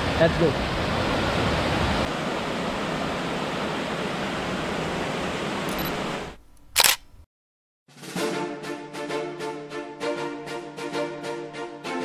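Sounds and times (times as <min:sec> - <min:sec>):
waterfall rushing: 0:00.0 - 0:06.3
sharp click: 0:05.7 - 0:07.3.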